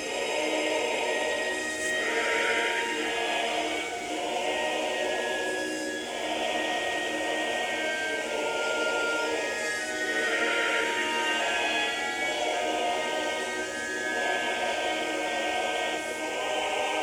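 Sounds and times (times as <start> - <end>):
choir-like soundtrack music: 0.0 - 17.0.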